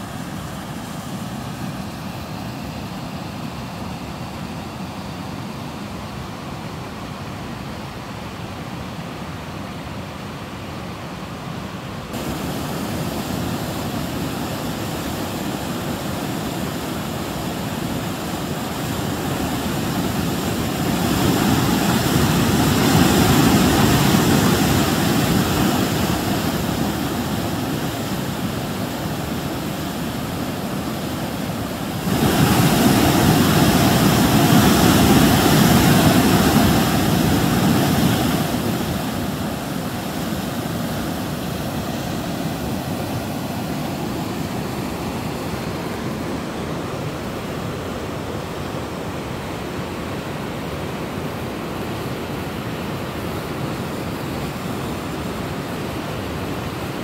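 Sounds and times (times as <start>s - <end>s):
water rushing over rock: 12.1s - 47.2s.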